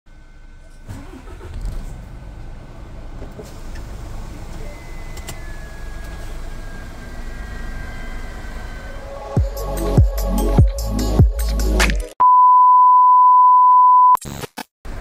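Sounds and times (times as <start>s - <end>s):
diesel engine idling: 0.1s - 11.2s.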